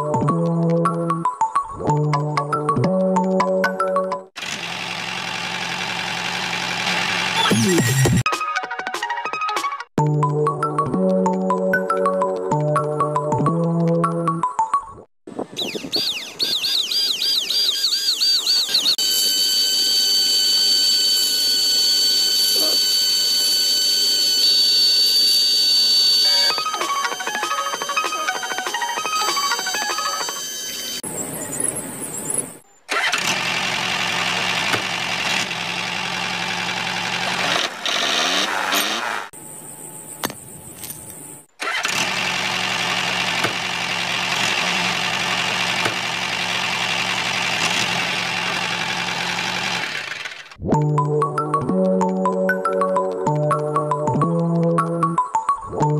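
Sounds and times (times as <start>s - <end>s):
electric motor whine: 17.5s - 31.0s.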